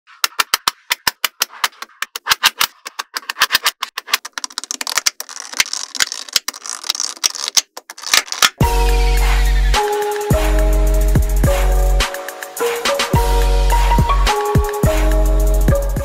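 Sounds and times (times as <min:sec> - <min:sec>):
magnetic balls clicking: 0:00.2 - 0:08.6
music with heavy bass: 0:08.6 - 0:16.0.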